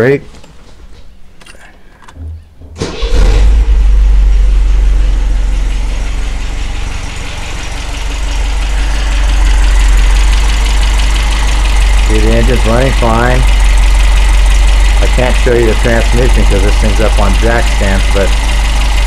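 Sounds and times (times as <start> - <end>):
car engine starting and idling: 2.8 - 19.0.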